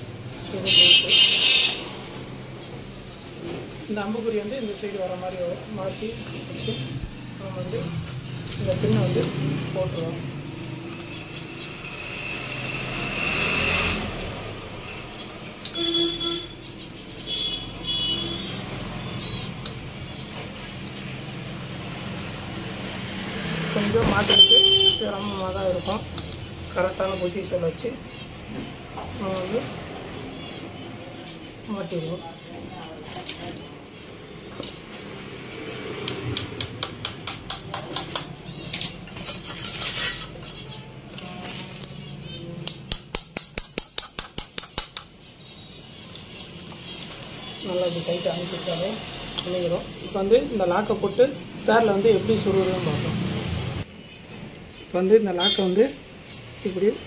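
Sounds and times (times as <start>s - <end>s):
road traffic passing: 0.0s - 57.0s
vehicle horn tooting: 0.7s - 1.9s, 15.7s - 16.6s, 17.3s - 18.5s, 24.0s - 25.3s, 55.4s - 55.7s.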